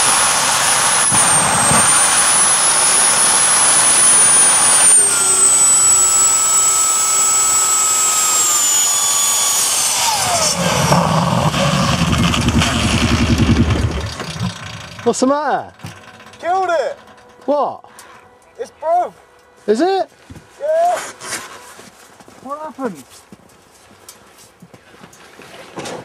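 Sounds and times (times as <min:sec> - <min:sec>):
jet engine with turbine whine: 0:00.0 - 0:19.6
rapid low pulsing rumble: 0:10.1 - 0:17.5.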